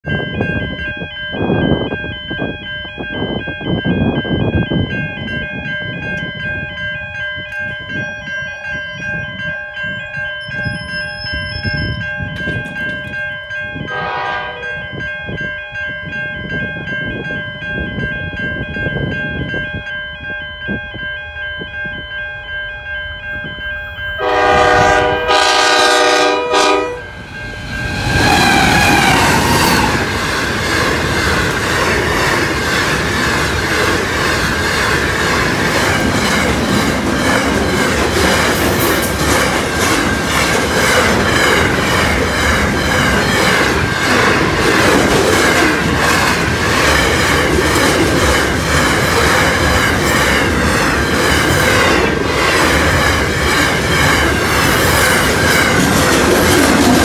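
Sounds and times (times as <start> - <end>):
train rumbling: 0.0 - 22.1, 22.7 - 57.0
crossing warning bells ringing: 0.0 - 57.0
locomotive horn blasts: 13.9 - 14.8, 24.2 - 27.2
train rushing past: 24.2 - 57.0.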